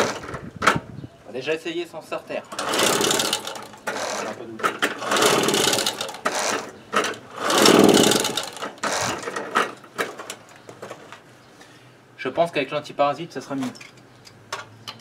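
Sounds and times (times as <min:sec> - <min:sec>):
moped engine whirring without firing: 0:00.0 - 0:01.0, 0:02.5 - 0:11.2.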